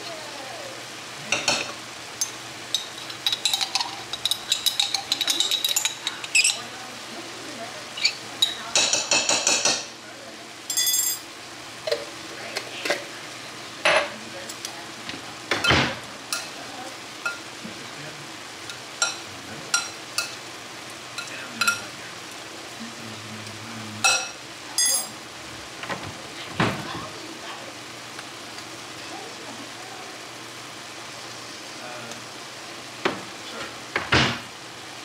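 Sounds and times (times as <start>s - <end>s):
utensils clinking against dishes: 1.3s - 6.8s, 8.0s - 9.9s, 10.7s - 11.3s, 15.5s - 16.6s, 17.2s - 17.5s, 18.7s - 20.4s, 21.2s - 21.9s, 24.0s - 25.2s
short ringing clink: 10.7s - 11.2s.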